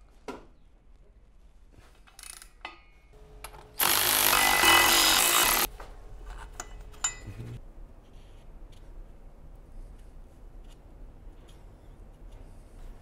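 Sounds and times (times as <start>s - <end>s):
cordless power tool running: 3.8s - 5.7s.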